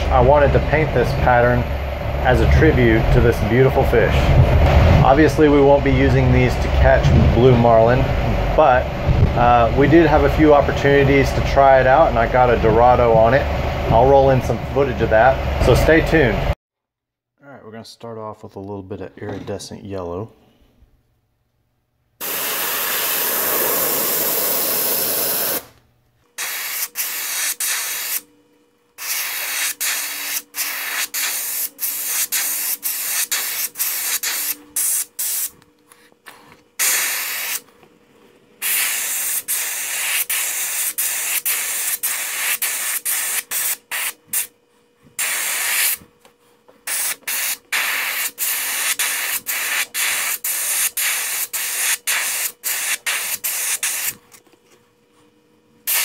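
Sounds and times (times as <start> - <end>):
airbrush hissing: 22.2 - 25.7, 26.4 - 28.2, 29.0 - 35.6, 36.8 - 37.6, 38.6 - 44.5, 45.2 - 46.0, 46.9 - 54.2.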